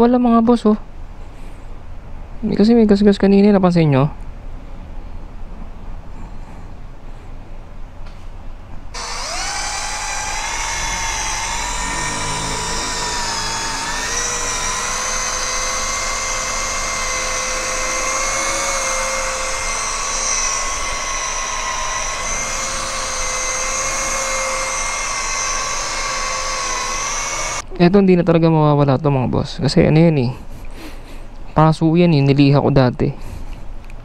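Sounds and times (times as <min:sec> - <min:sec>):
cordless drill whining: 0:09.0 - 0:27.6.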